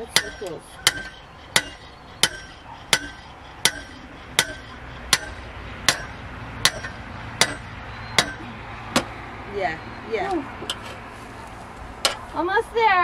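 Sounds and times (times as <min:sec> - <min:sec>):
hammer striking metal stake: 0:00.0 - 0:09.1.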